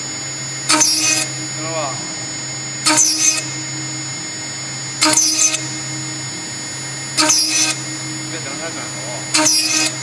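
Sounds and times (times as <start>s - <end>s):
router spindle running: 0.0s - 10.0s
high-pitched cutting screech: 0.7s - 1.3s, 2.8s - 3.5s, 5.0s - 5.6s, 7.2s - 7.8s, 9.3s - 10.0s.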